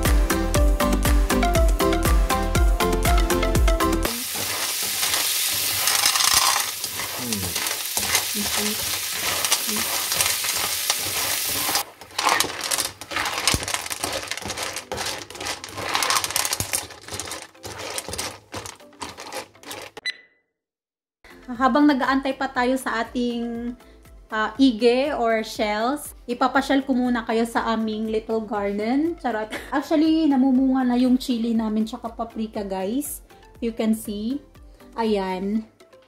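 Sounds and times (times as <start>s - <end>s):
food sizzling in a pan: 4.1s - 16.7s
plastic spatula stirring: 4.1s - 20.0s
shells rattling against a pan: 4.1s - 20.0s.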